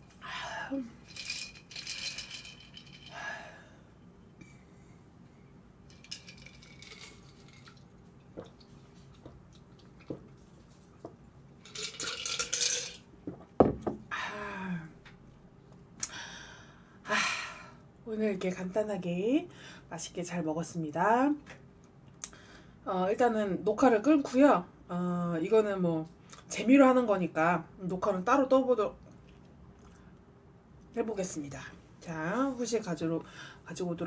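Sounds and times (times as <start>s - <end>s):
utensils clinking on dishes: 11.6s - 13.0s.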